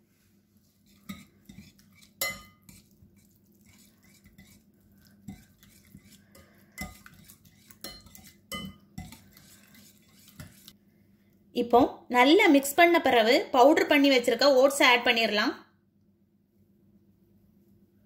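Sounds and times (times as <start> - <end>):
whisk stirring wet batter: 0.6 - 10.8
whisk clinking against glass bowl: 0.9 - 2.9, 3.6 - 4.6, 5.3 - 10.7.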